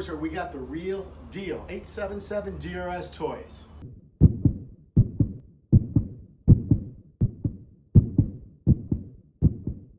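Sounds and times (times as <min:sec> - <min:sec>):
heartbeat lub-dub thumps: 0:03.8 - 0:09.9.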